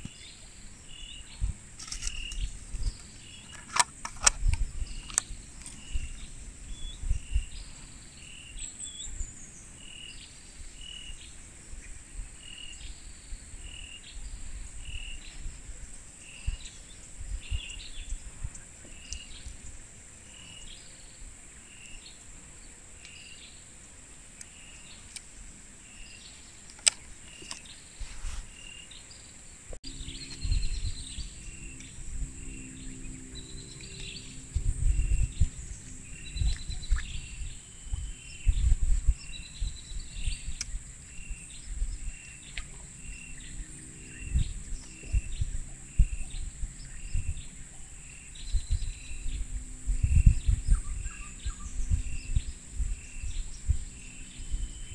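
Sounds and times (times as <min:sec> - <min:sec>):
wind buffeting microphone: 0:00.0 - 0:21.4, 0:29.8 - 0:54.9
high insect drone: 0:00.0 - 0:54.9
other bird calls: 0:29.9 - 0:41.5.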